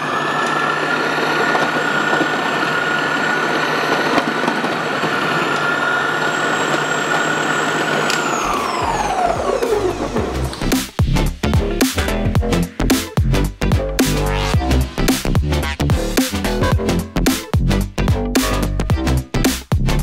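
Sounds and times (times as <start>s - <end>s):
mixer grinder motor whining: 0.0s - 11.0s.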